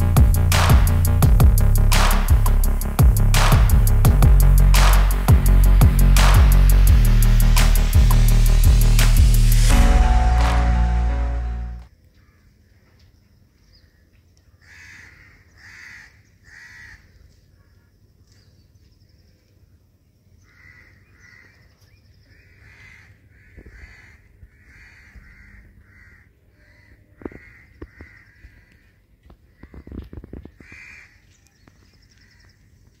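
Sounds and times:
low rumble: 0.0s - 11.8s
birds calling: 20.3s - 33.0s.

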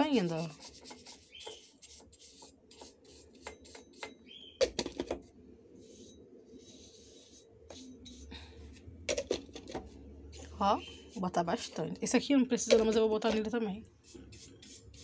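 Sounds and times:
brush scrubbing: 0.0s - 4.0s, 10.4s - 11.9s, 14.0s - 15.0s
burner caps knocking: 3.5s - 5.2s, 9.1s - 9.9s, 12.6s - 13.6s.

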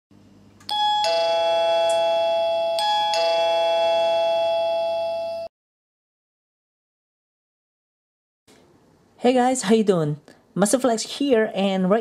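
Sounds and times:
faint hum: 0.2s - 3.0s
doorbell ding-dong chime: 0.7s - 5.5s.

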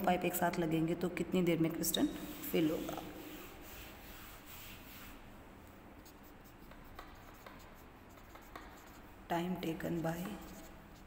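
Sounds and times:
duster wiping marker board: 2.0s - 5.3s, 6.0s - 9.2s
marker pen scratching on board: 2.2s - 5.2s, 6.0s - 11.0s.

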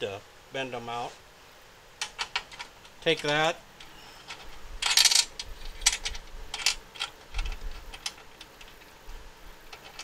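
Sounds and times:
metal clicking and rattling: 2.0s - 8.9s, 9.6s - 10.0s.

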